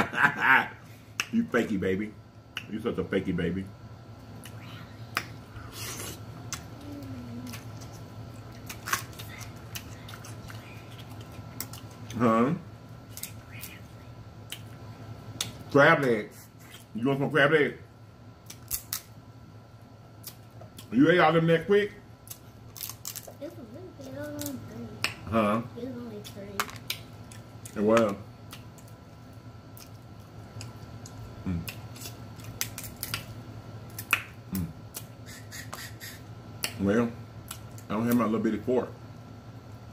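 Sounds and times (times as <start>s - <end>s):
steady low hum: 0.0s - 39.9s
chewing and lip smacking: 7.5s - 12.2s, 13.1s - 14.8s
crab shell cracking by hand: 18.4s - 19.1s, 22.2s - 23.4s, 30.6s - 35.1s.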